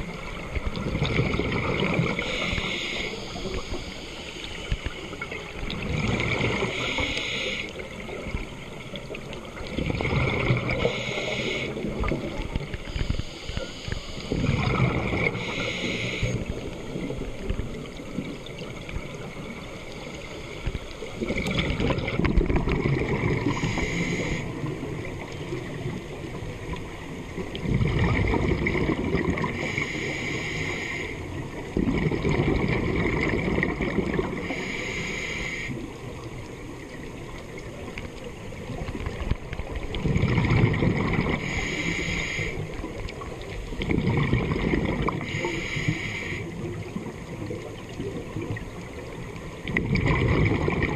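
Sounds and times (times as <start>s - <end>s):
rumbling gush of bubbles: 0.0s - 2.4s, 5.2s - 6.8s, 7.8s - 11.0s, 14.3s - 15.5s, 21.1s - 23.8s, 24.5s - 29.8s, 31.6s - 34.5s, 37.3s - 41.6s, 42.7s - 45.4s, 46.6s - 50.9s.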